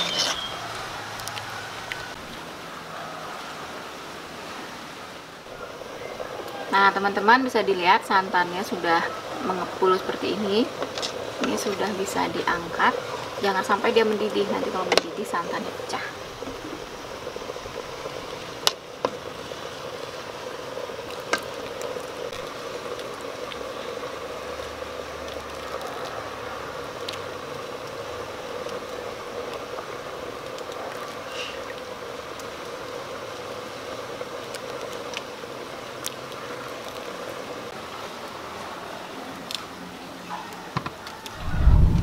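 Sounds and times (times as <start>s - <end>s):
steady background hiss: 0.0s - 42.0s.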